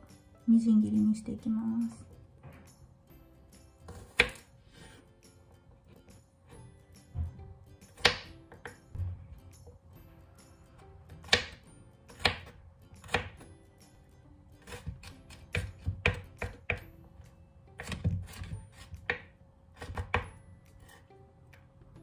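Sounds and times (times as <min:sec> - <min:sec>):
knife chopping on wooden board: 0:03.9 - 0:04.5, 0:07.8 - 0:09.1, 0:11.2 - 0:13.4, 0:14.6 - 0:16.9, 0:17.8 - 0:20.4.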